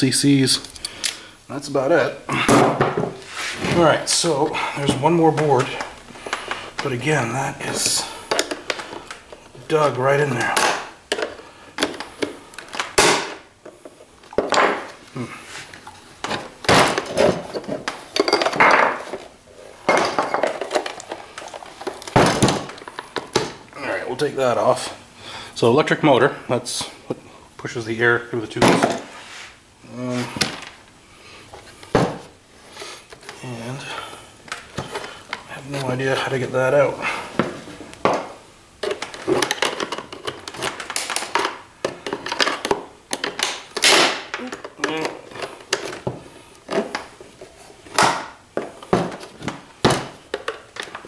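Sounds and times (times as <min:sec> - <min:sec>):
plastic parts clattering and knocking: 0:02.3 - 0:07.0, 0:07.6 - 0:15.0, 0:15.8 - 0:23.6, 0:28.6 - 0:29.1, 0:37.2 - 0:51.0.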